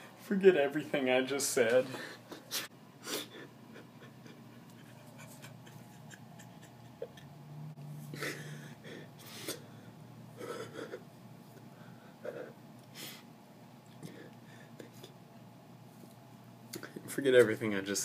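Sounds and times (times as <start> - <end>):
person breathing and gasping: 8.1 - 11.0.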